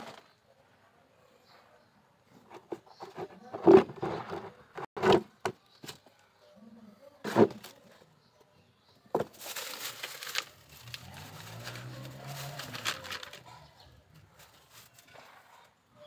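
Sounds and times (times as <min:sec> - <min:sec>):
rustling and crackling: 0:09.2 - 0:15.7.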